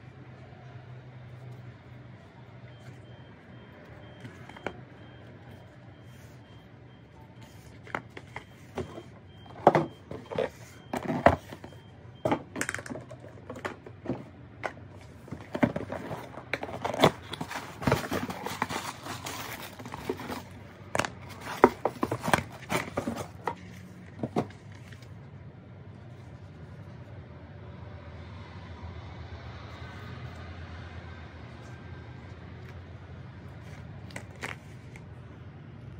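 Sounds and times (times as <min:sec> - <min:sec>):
cardboard box rustling: 0:07.4 - 0:12.4, 0:13.2 - 0:25.1.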